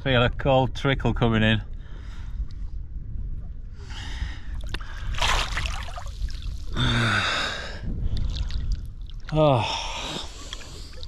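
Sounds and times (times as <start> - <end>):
man gasping and breathing heavily: 6.7 - 8.1.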